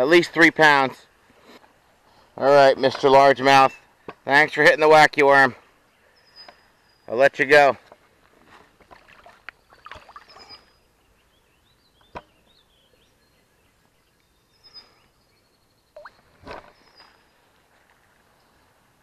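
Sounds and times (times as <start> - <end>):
water splashing and sloshing: 8.8 - 10.8
high bird chirps: 9.6 - 17.4.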